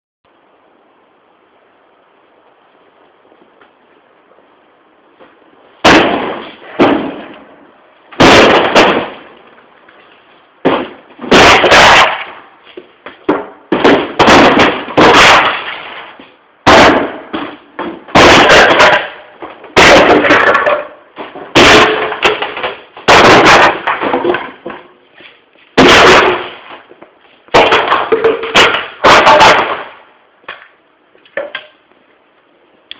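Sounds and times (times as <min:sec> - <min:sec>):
wardrobe being smashed apart: 0:05.8 - 0:07.4, 0:08.2 - 0:09.3, 0:10.6 - 0:12.5, 0:13.7 - 0:17.5, 0:18.1 - 0:24.8, 0:25.8 - 0:26.9, 0:27.5 - 0:30.0.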